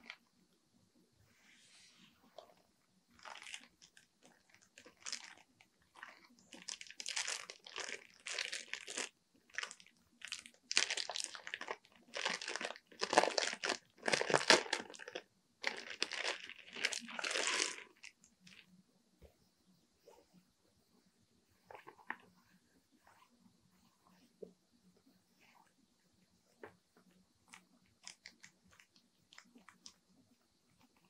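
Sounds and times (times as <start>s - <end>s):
plastic bags crinkling: 3.2s - 4.0s, 4.6s - 5.4s, 6.0s - 18.6s.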